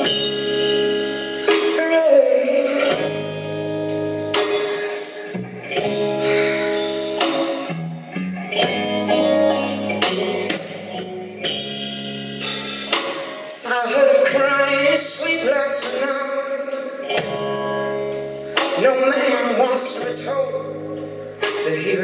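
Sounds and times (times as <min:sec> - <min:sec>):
drum and cymbal hits: 0:00.0 - 0:02.1, 0:10.0 - 0:20.2
electric guitar: 0:00.0 - 0:22.0
live blues band playing: 0:00.0 - 0:22.0.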